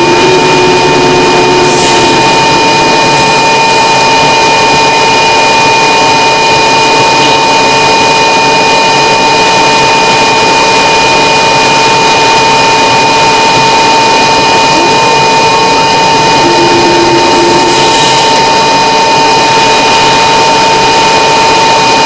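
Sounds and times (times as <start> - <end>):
high whine: 0.0 - 22.0.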